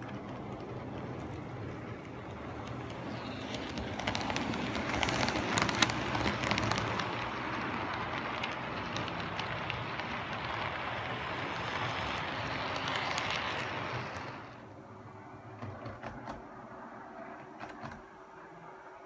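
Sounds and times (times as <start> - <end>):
model train wheels rattling: 0.0 - 14.7
sharp clicks of train: 0.0 - 19.0.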